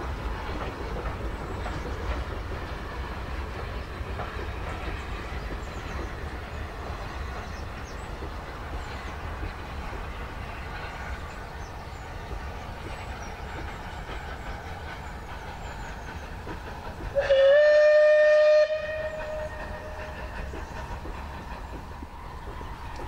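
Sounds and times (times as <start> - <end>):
distant train rumble: 0.0 - 23.0
steam locomotive whistle: 17.2 - 20.4.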